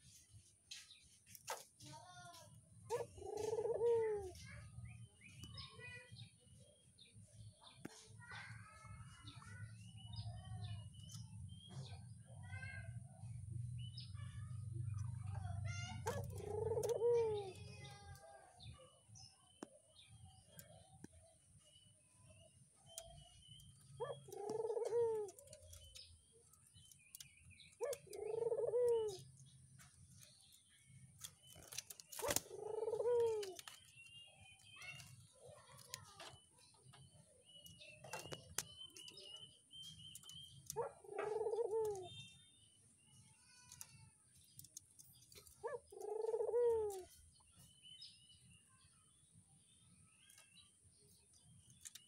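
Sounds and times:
small birds chirping: 0:00.0 - 0:52.0
doves cooing: 0:02.9 - 0:04.4, 0:15.8 - 0:18.1, 0:23.8 - 0:26.1, 0:27.7 - 0:29.3, 0:31.6 - 0:33.8, 0:40.2 - 0:42.2, 0:45.3 - 0:47.3.

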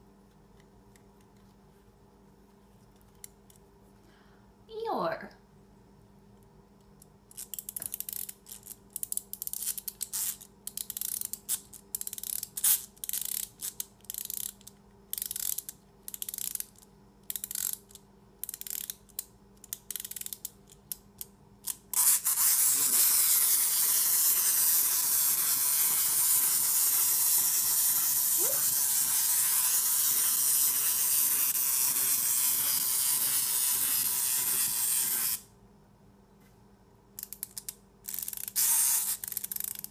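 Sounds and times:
wind-up key ratchet clicking: 0:07.3 - 0:22.4, 0:37.2 - 0:39.9
clockwork gears whirring: 0:22.0 - 0:35.4.

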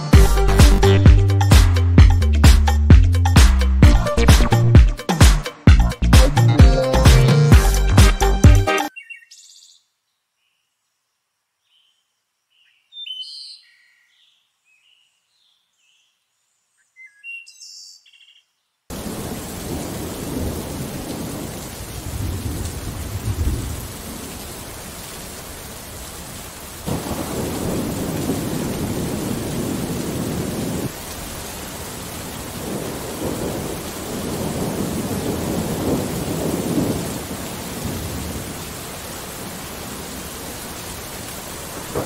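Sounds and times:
heavy rain: 0:00.0 - 0:05.0, 0:05.7 - 0:08.7, 0:18.9 - 0:42.0
faint bird chirps: 0:08.9 - 0:18.8
thunder rolling: 0:18.9 - 0:24.3, 0:26.9 - 0:31.0, 0:32.5 - 0:38.6, 0:41.6 - 0:42.0.

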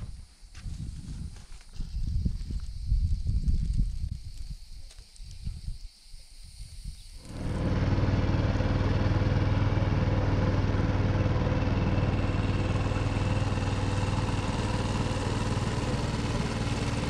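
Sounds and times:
outboard motor running: 0:07.2 - 0:17.0.

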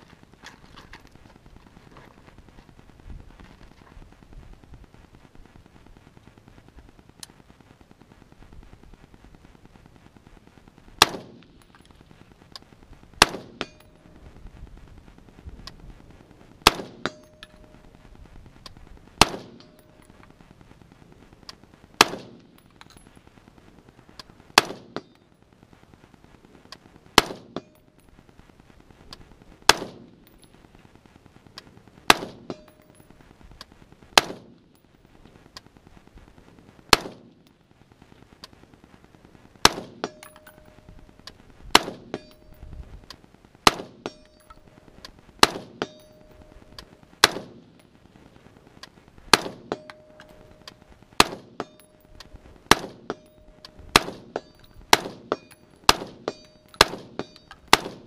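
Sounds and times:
rifle shots: 0:11.0 - 0:11.7, 0:13.2 - 0:14.0, 0:16.6 - 0:17.6, 0:19.2 - 0:20.2, 0:22.0 - 0:23.0, 0:24.5 - 0:25.2, 0:27.1 - 0:27.7, 0:29.7 - 0:30.3, 0:32.0 - 0:33.0, 0:34.2 - 0:34.6, 0:36.9 - 0:37.4, 0:39.6 - 0:40.8, 0:41.7 - 0:42.6, 0:43.6 - 0:44.6, 0:45.4 - 0:47.8, 0:49.3 - 0:58.0
bullet pinging steel target: 0:13.2 - 0:14.1, 0:16.6 - 0:17.8, 0:19.2 - 0:20.2, 0:27.2 - 0:27.8, 0:32.1 - 0:33.2, 0:39.7 - 0:41.0, 0:41.7 - 0:42.7, 0:43.6 - 0:47.9, 0:49.3 - 0:58.0.

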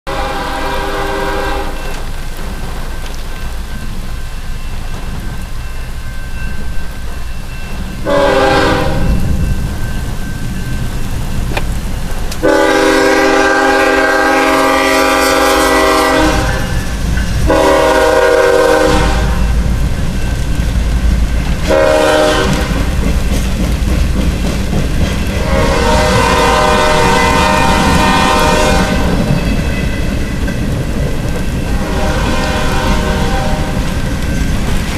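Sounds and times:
locomotive air horn blasts: 0:00.1 - 0:01.9, 0:08.0 - 0:09.4, 0:12.4 - 0:16.9, 0:17.5 - 0:19.6, 0:21.6 - 0:22.9, 0:25.4 - 0:29.3, 0:31.7 - 0:33.9
train rumble: 0:00.1 - 0:34.9.

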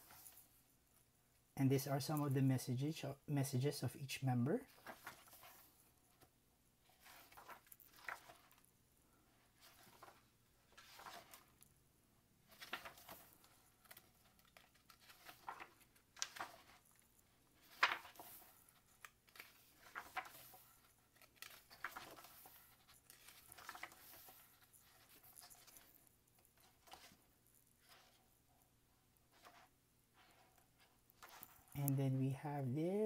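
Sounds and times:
book pages turning: 0:00.0 - 0:00.5, 0:04.6 - 0:08.7, 0:09.3 - 0:11.7, 0:12.4 - 0:28.3, 0:29.2 - 0:32.0.

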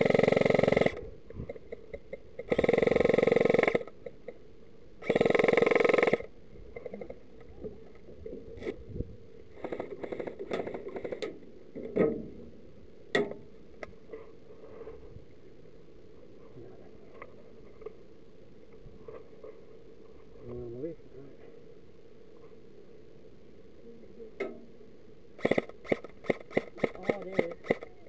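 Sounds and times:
airsoft gun automatic fire: 0:05.0 - 0:06.3, 0:25.4 - 0:28.0.

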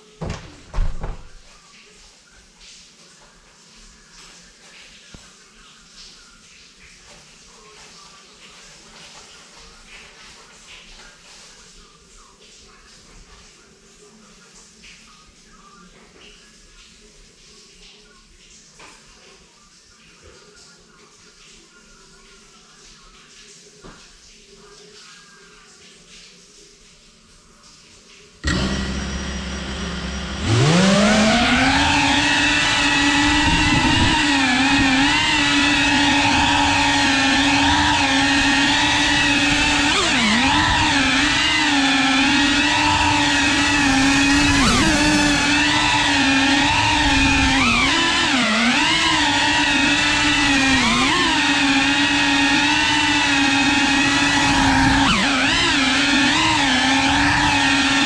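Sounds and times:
quadcopter motors whining: 0:28.4 - 0:58.0.

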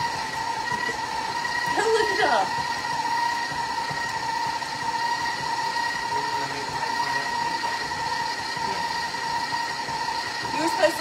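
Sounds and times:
stand mixer motor whine: 0:00.0 - 0:11.0.

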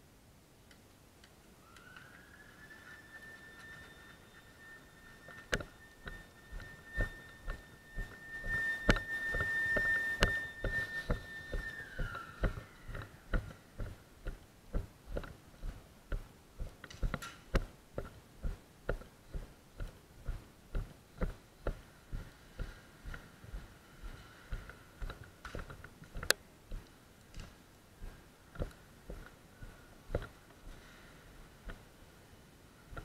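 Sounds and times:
steady high tone sliding down: 0:01.5 - 0:27.0.

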